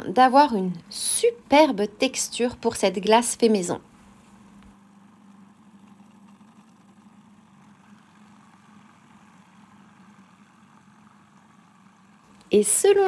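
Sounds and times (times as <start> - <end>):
blender motor humming: 1.4 - 13.0.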